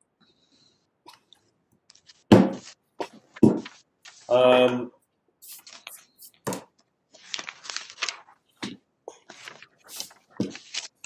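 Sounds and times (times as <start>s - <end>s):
papers rustling and scraping: 1.9s - 4.4s, 5.4s - 11.0s.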